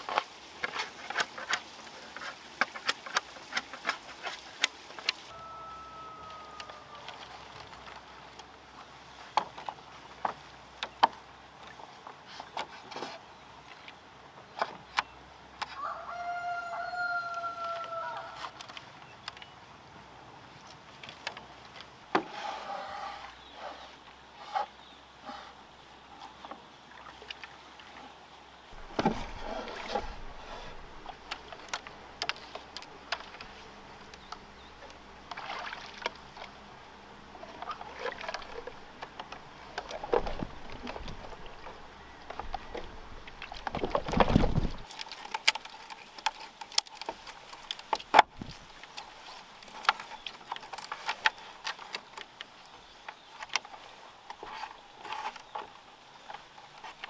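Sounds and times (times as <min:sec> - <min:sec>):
bamboo poles knocking and rubbing: 0:00.0 - 0:05.3, 0:28.8 - 0:36.4
water lapping and sloshing: 0:00.0 - 0:15.8, 0:20.3 - 0:57.0.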